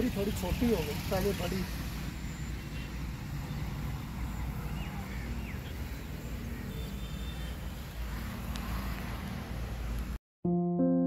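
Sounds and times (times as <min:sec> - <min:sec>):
faint bird chirps: 0:02.3 - 0:07.7.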